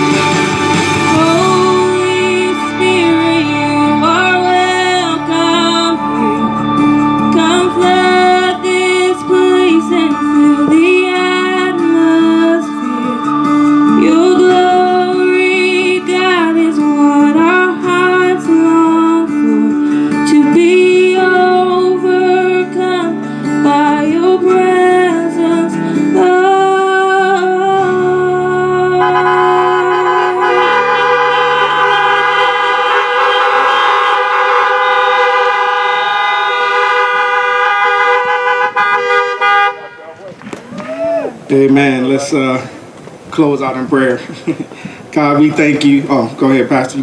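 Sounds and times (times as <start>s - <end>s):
electronic keyboard chords: 0.0s - 38.8s
woman singing gospel song: 0.9s - 30.7s.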